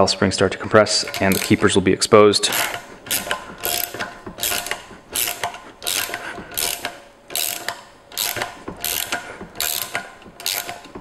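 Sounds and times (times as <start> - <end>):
ratcheting wrench clicking: 1.0 - 1.8, 2.4 - 11.0.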